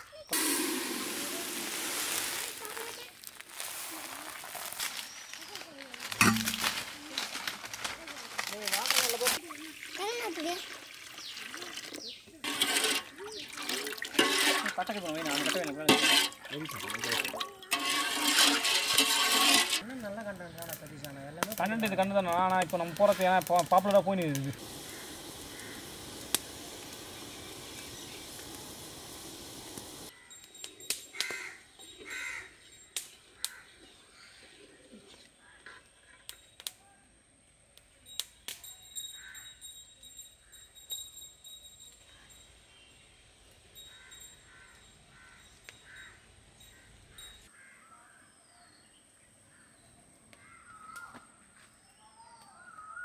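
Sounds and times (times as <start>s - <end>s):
crow cawing: 24.8s - 26.1s, 31.1s - 32.6s, 43.9s - 46.2s, 47.5s - 48.3s, 49.5s - 51.2s
faint bell-like music: 38.0s - 43.0s.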